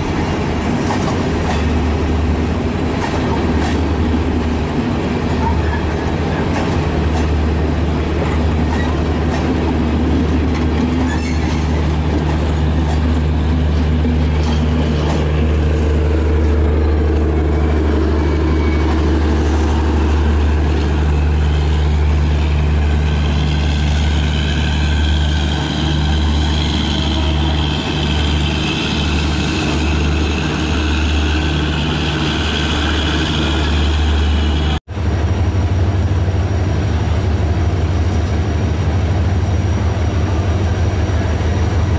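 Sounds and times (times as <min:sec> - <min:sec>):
low diesel engine drone: 0:00.0 - 0:41.9
train coaches rolling past: 0:00.0 - 0:41.9
train wheels squealing: 0:11.0 - 0:11.8, 0:17.4 - 0:19.9.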